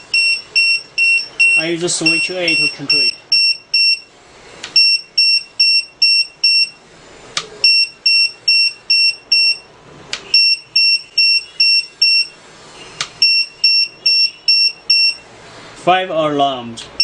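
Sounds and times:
alarm buzzer short high-pitched beeps: 0:00.0 - 0:04.1, 0:04.8 - 0:06.8, 0:07.6 - 0:09.7, 0:10.3 - 0:12.4, 0:13.2 - 0:15.2.

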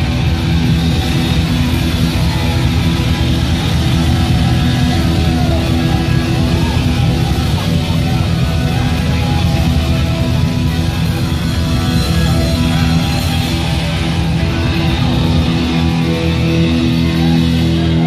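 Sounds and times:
heavy metal band playing live: 0:00.0 - 0:18.0.

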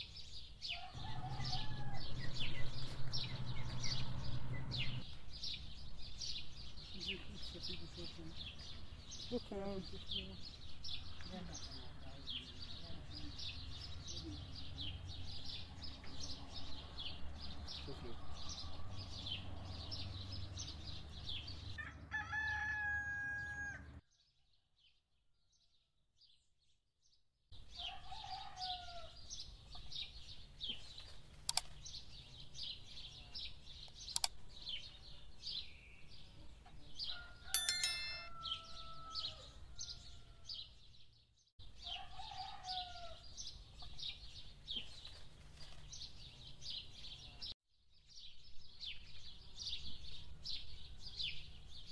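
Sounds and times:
songbirds chirping: 0:00.0 - 0:26.7, 0:27.6 - 0:51.9
rooster crowing: 0:00.7 - 0:02.5, 0:21.8 - 0:24.0, 0:27.8 - 0:29.2, 0:37.1 - 0:40.6, 0:41.9 - 0:43.2.

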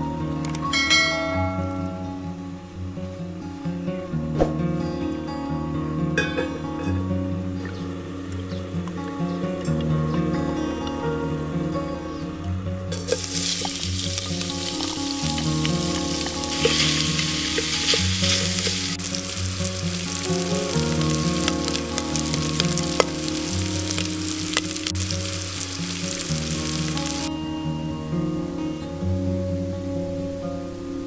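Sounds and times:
bacon sizzling in oil: 0:13.0 - 0:27.3.

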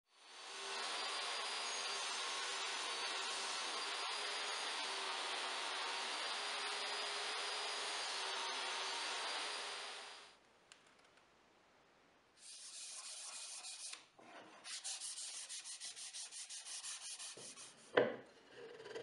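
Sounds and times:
table saw cutting hiss: 0:00.2 - 0:10.3, 0:12.4 - 0:17.8
hand sanding wood: 0:12.4 - 0:14.0, 0:14.6 - 0:17.9.

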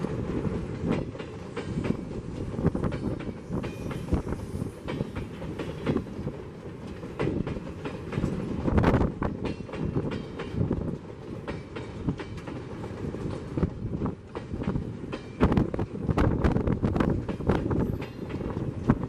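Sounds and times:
freight train wagons clanking: 0:00.0 - 0:19.0.

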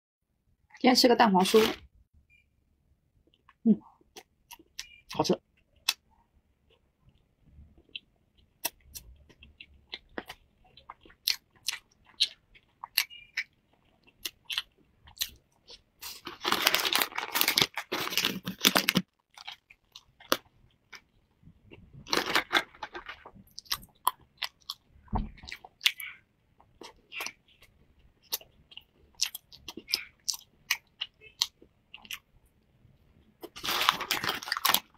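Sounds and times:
chewing flaky pastry: 0:03.2 - 0:34.9
plastic wrapper crinkling: 0:16.0 - 0:19.6, 0:22.0 - 0:23.4, 0:33.4 - 0:34.9.

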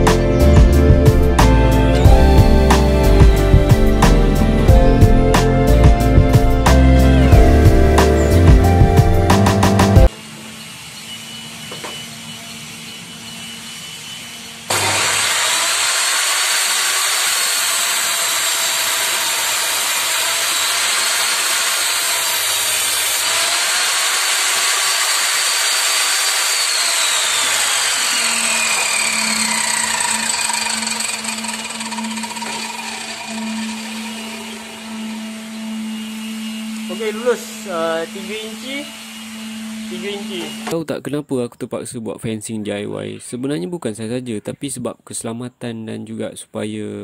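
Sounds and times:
table saw whining: 0:00.0 - 0:40.8
saw blade spinning down: 0:10.1 - 0:40.8.

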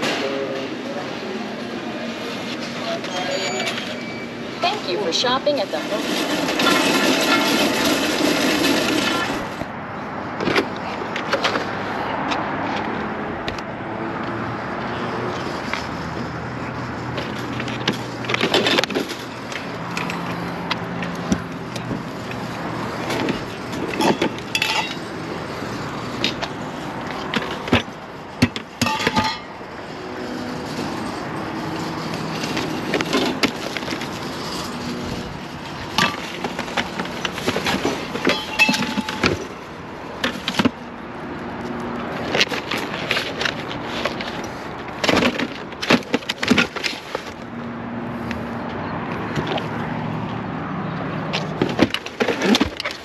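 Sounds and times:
shopping cart wheels rumbling: 0:00.3 - 0:09.7, 0:30.2 - 0:39.6.

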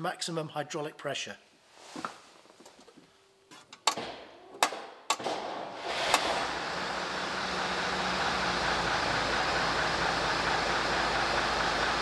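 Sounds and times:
bus diesel engine running: 0:06.2 - 0:12.0.

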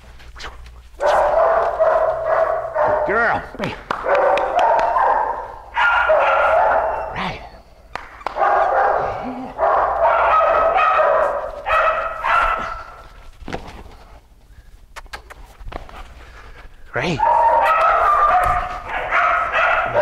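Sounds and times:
dog crying: 0:17.2 - 0:20.0.

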